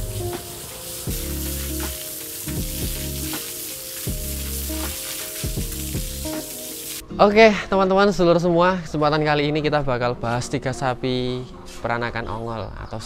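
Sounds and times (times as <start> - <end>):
background music with bass beat: 0.0 - 3.5, 4.1 - 6.5
hose water spraying: 0.0 - 7.0.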